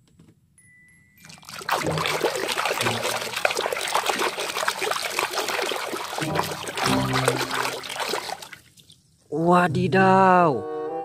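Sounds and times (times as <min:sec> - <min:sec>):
hand splashing soapy water: 0:01.2 - 0:09.0.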